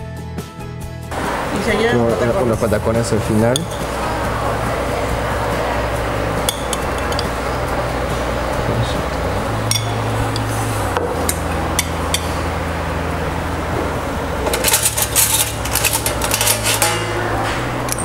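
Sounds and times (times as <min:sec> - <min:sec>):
spoon clinking on a plate: 0:03.5 - 0:03.9, 0:06.4 - 0:07.3, 0:09.7 - 0:10.5.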